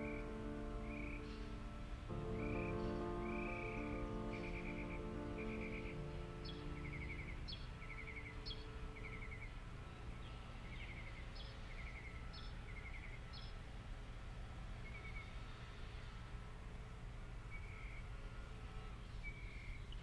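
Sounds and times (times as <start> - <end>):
steady low rumble: 0.0 - 11.8
soft background music: 0.0 - 20.0.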